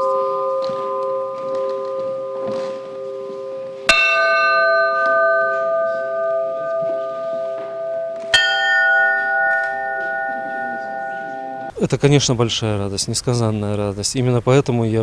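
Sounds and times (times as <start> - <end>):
church bells ringing: 0.0 - 11.7.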